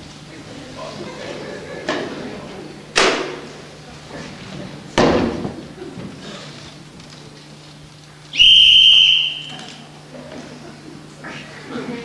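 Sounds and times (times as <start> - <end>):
loud whistle blast: 8.3 - 9.8.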